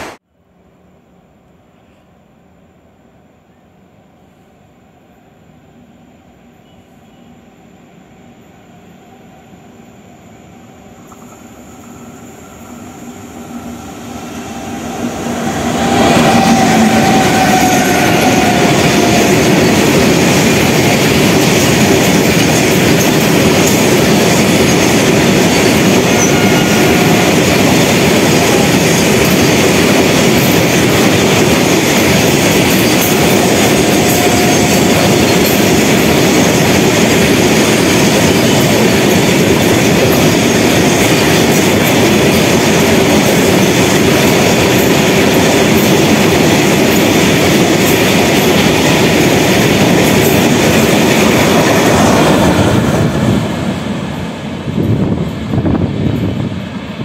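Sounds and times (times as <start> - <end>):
freight train wheels clattering: 14.5 - 56.9.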